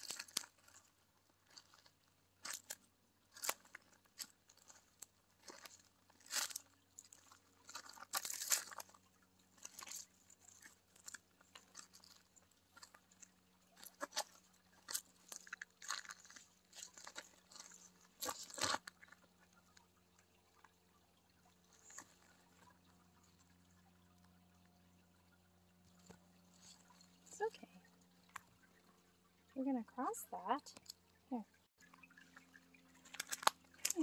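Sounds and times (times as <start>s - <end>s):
footsteps crunching on gravel: 0.0s - 9.0s.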